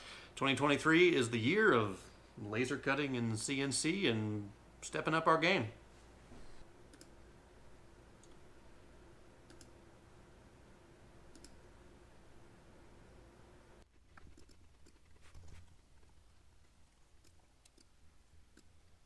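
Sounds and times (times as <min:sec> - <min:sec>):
low steady hum: 0:00.0 - 0:19.0
computer mouse clicks: 0:06.9 - 0:07.2, 0:09.4 - 0:09.8, 0:11.3 - 0:11.6, 0:14.2 - 0:15.7, 0:17.2 - 0:18.8.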